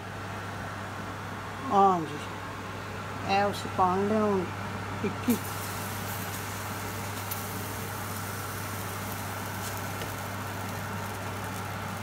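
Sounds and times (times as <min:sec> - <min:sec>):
constant low hum: 0:00.0 - 0:12.0
batter sizzling in a pan: 0:05.3 - 0:12.0.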